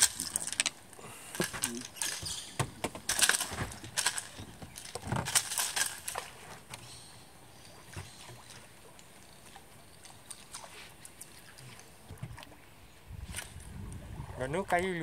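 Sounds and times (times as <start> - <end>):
quiet river ambience: 0.0 - 15.0
fishing tackle and hull knocks: 1.4 - 6.9.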